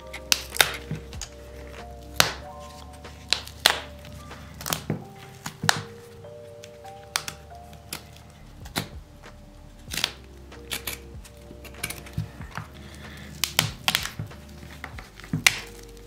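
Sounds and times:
faint background music: 0.0s - 16.0s
leather and thread snapping: 7.1s - 16.0s.

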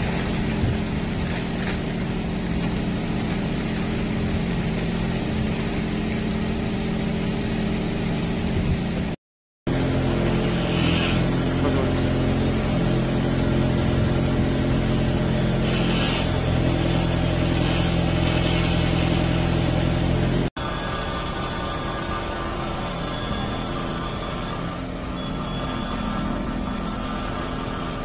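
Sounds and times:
engine running: 0.0s - 28.0s
faint high whine: 20.6s - 28.0s.

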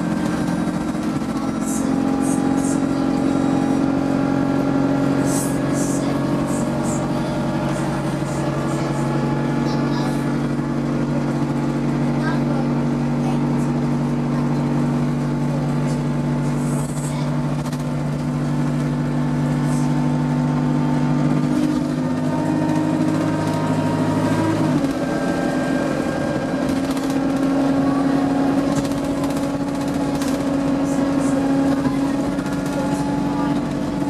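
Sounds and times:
bus engine droning: 0.0s - 34.0s.

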